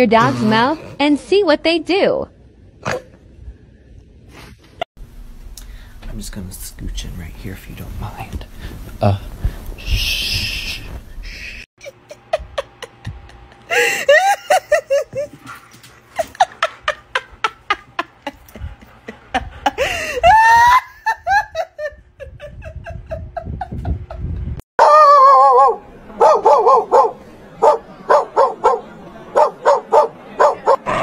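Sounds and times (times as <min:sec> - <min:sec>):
person laughing hard: 0:11.8 - 0:15.4, 0:16.1 - 0:24.5
dog crying out: 0:24.8 - 0:25.8.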